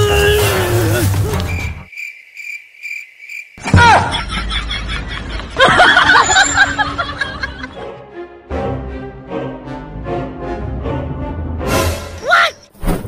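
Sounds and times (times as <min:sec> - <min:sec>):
cricket chirping: 0:01.4 - 0:03.7.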